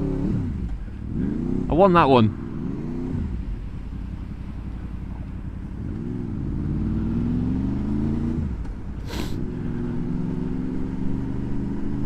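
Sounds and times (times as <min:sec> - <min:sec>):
motorcycle engine accelerating: 0:00.0 - 0:12.0
brief hiss: 0:09.0 - 0:09.4.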